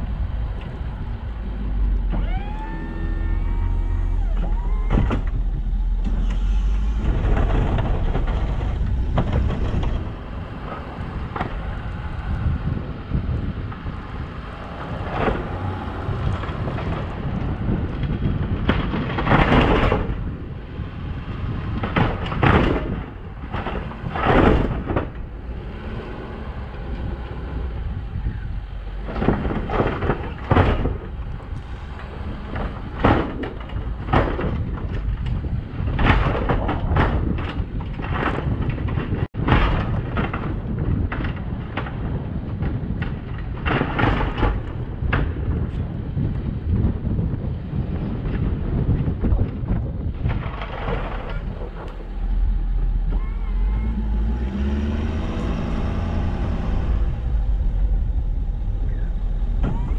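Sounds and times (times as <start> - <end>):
loud rushes of noise: 0.0 - 20.4, 51.0 - 59.9
truck engine and road rumble: 0.0 - 59.9.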